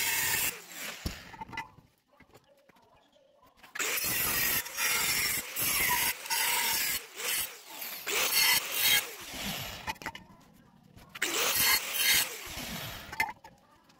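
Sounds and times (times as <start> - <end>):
angle grinder cutting steel: 0.0 - 1.4, 3.8 - 10.1, 11.2 - 13.4.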